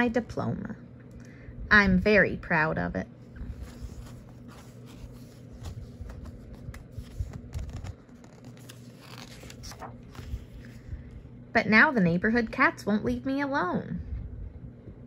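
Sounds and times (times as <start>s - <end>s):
hand rustling over paper pages: 3.3s - 11.1s
page turning: 3.4s - 10.8s.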